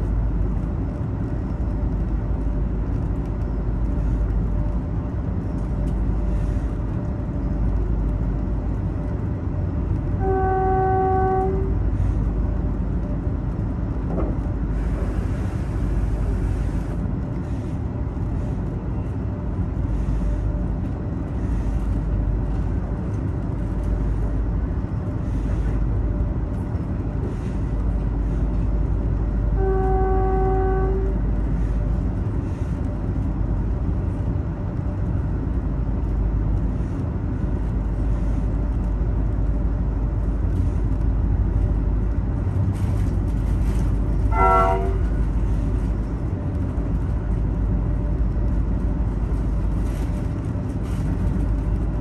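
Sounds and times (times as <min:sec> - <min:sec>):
steady low rumble: 0:00.0 - 0:10.4, 0:11.3 - 0:52.0
train horn blast: 0:10.2 - 0:12.1, 0:29.5 - 0:31.2, 0:44.2 - 0:45.3.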